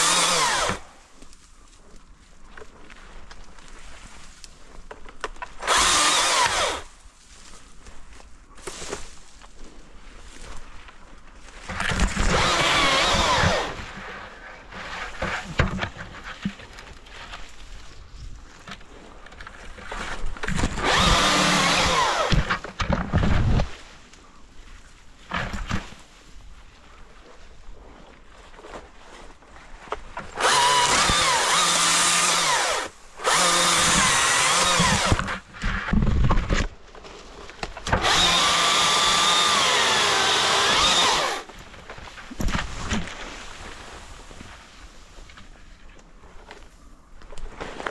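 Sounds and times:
battery chainsaw whining: 0:00.0 - 0:00.9, 0:05.6 - 0:06.9, 0:12.2 - 0:13.8, 0:20.6 - 0:22.6, 0:30.3 - 0:35.4, 0:37.8 - 0:41.5
branches cracking and rustling: 0:00.0 - 0:47.9.

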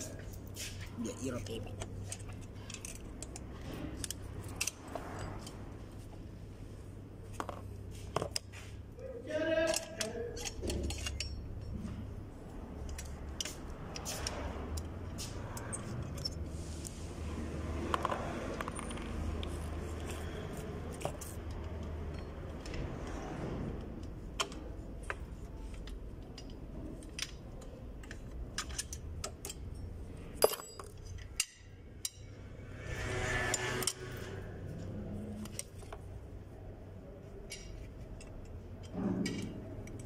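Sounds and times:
metallic clicks of springs and tools: 0:00.0 - 0:05.7, 0:09.5 - 0:12.0, 0:12.8 - 0:17.0, 0:17.9 - 0:22.8, 0:23.8 - 0:36.0, 0:37.4 - 0:40.0.

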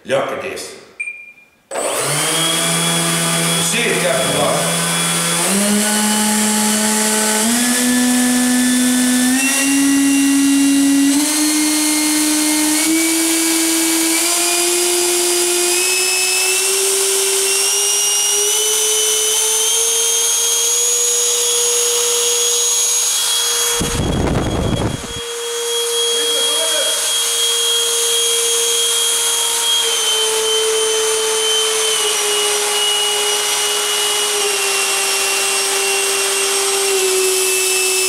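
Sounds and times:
electric ducted fan whine: 0:18.6 - 0:29.0.

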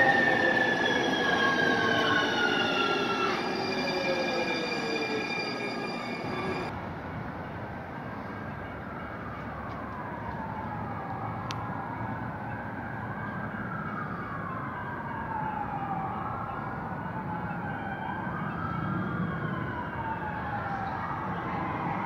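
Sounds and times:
siren wailing: 0:00.0 - 0:06.7, 0:09.5 - 0:22.0
train wheels squealing: 0:00.0 - 0:06.7.

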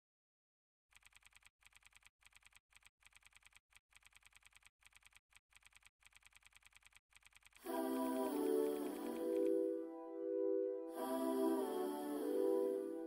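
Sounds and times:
typing key clicks: 0:00.9 - 0:09.6.

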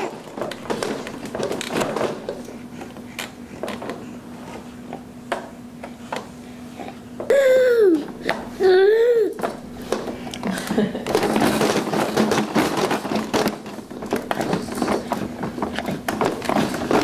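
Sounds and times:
plastic toys clicking and knocking: 0:00.0 - 0:02.5, 0:09.3 - 0:17.0
faint steady hum: 0:00.0 - 0:17.0
baby vocalizing: 0:07.3 - 0:09.4.

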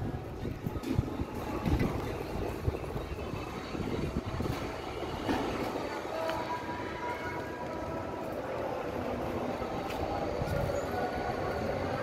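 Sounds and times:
wind blowing over microphone: 0:00.0 - 0:05.9, 0:10.0 - 0:11.9.

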